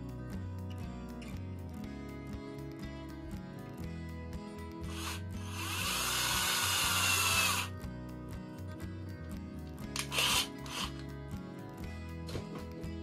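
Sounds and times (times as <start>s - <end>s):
background music: 0.0s - 13.0s
cordless drill motor whine: 4.9s - 7.7s, 10.0s - 11.0s.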